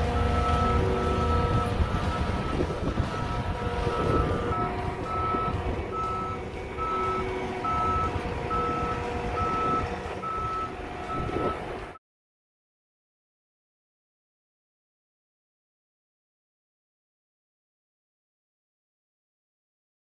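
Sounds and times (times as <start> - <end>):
loader engine running: 0.0 - 12.0
backup alarm beeping: 0.2 - 11.7.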